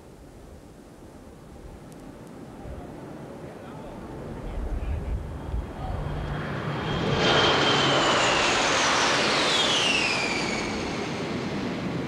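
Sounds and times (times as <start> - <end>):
jets flying overhead: 3.0 - 12.0
jet whine: 3.1 - 12.0.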